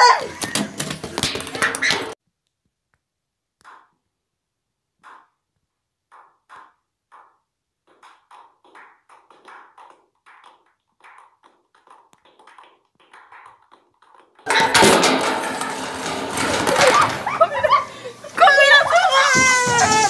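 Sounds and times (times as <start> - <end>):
several people clapping quickly: 7.9 - 14.4.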